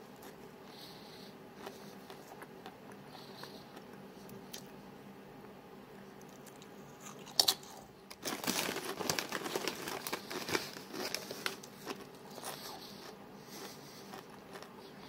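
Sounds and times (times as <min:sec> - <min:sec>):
crunchy chewing: 0:01.6 - 0:04.7, 0:06.2 - 0:15.0.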